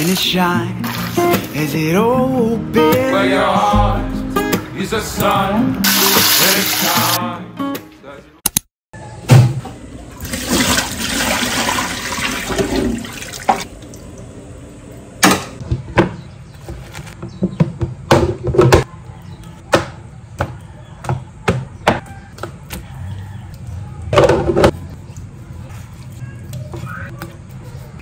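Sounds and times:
water splashing into a steel sink: 0:00.0 - 0:01.7, 0:10.2 - 0:14.2.

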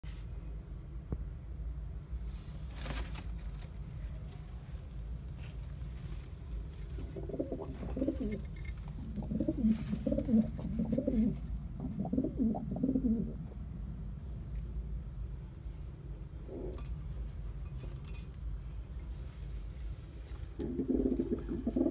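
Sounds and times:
pigeons cooing: 0:07.0 - 0:13.5, 0:16.5 - 0:16.8, 0:20.6 - 0:21.9.

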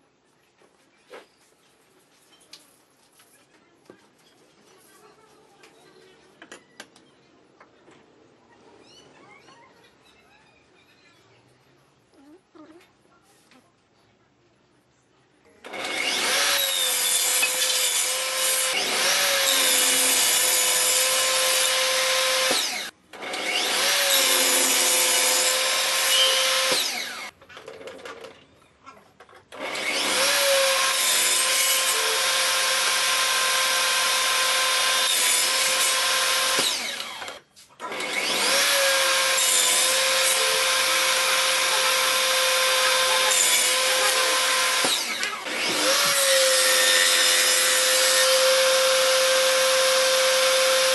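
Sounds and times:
table saw whine cutting wood: 0:15.7 - 0:27.3, 0:29.7 - 0:37.2, 0:38.0 - 0:50.9.

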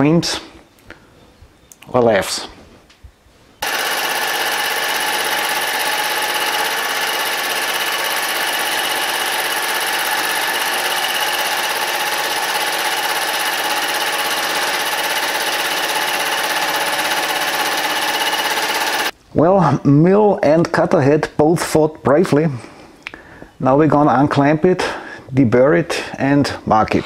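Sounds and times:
milling machine cutting metal: 0:03.6 - 0:19.1.

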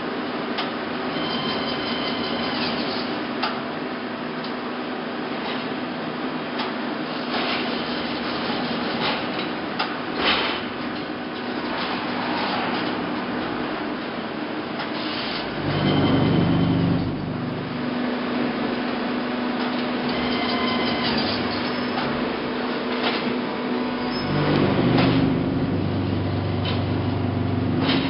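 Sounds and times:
block production machinery hum: 0:00.0 - 0:28.0
low motor rumble: 0:15.6 - 0:17.9, 0:24.1 - 0:28.0.

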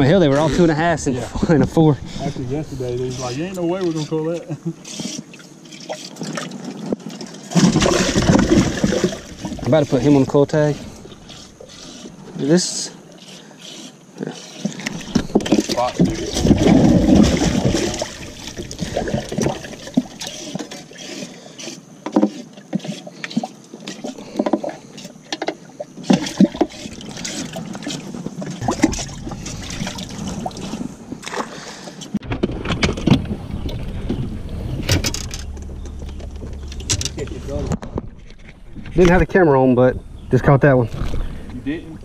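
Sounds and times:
fish splashing in water: 0:05.0 - 0:09.7, 0:14.5 - 0:21.3, 0:26.1 - 0:33.2
knocks and clicks of gear: 0:32.0 - 0:39.4.

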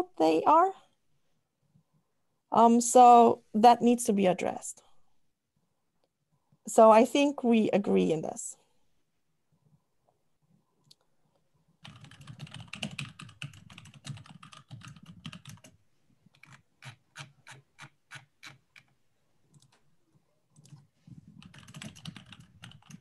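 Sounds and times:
typing on keyboard: 0:11.8 - 0:19.8, 0:20.6 - 0:23.0.

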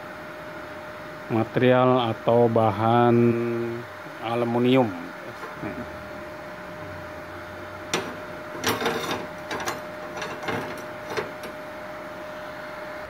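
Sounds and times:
welder whine: 0:00.0 - 0:13.0
metal plates clattering on workbench: 0:07.9 - 0:11.6.

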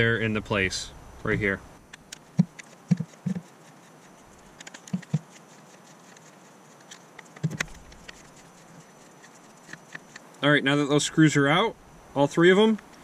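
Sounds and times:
plastic panel being handled: 0:04.4 - 0:10.3.

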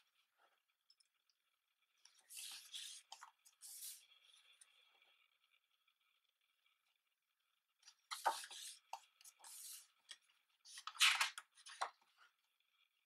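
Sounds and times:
book pages turning: 0:02.1 - 0:04.6, 0:08.1 - 0:12.2.

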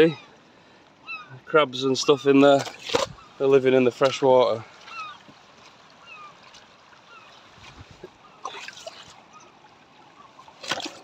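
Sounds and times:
water trickling over stones: 0:00.0 - 0:11.0
splashes and clicking pebbles: 0:02.4 - 0:03.2, 0:03.8 - 0:09.3, 0:10.3 - 0:11.0.

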